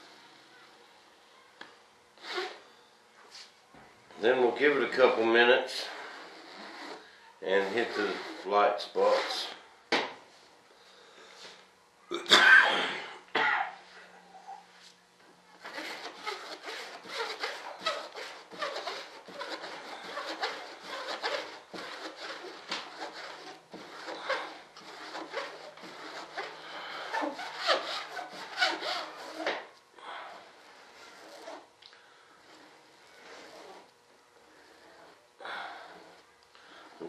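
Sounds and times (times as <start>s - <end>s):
brush scrubbing resin into cloth: 4.6s - 9.5s, 15.6s - 29.4s.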